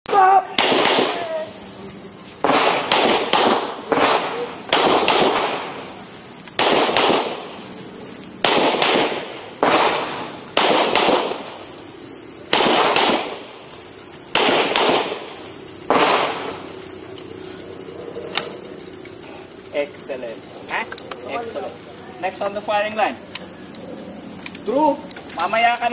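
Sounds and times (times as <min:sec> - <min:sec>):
pistol shots echoing: 0:00.5 - 0:01.5, 0:02.4 - 0:05.9, 0:06.5 - 0:07.6, 0:08.4 - 0:11.6, 0:12.5 - 0:13.6, 0:14.3 - 0:16.6.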